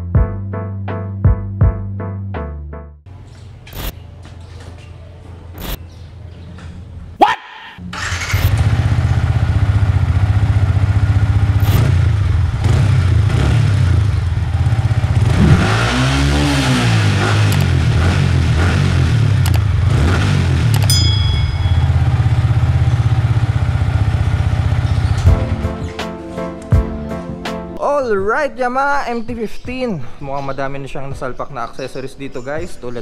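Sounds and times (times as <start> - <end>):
motorcycle engine idling: 7.8 - 15.3, 20.9 - 25.5.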